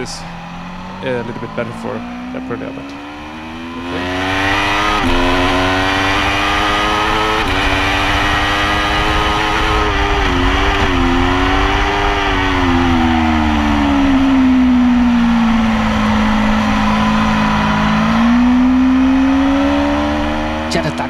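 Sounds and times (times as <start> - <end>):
motorcycle engine accelerating hard: 0.0 - 21.0.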